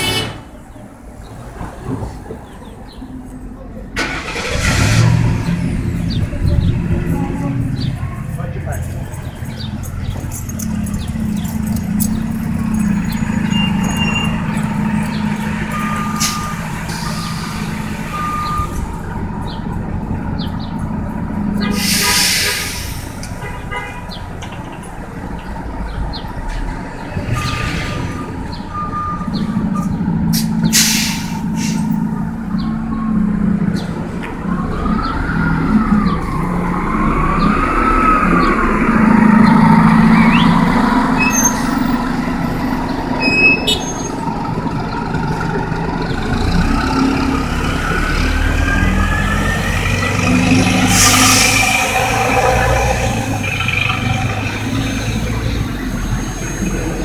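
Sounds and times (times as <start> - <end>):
bus engine humming: 0.0 - 57.0
air hiss bursts: 21.8 - 23.2.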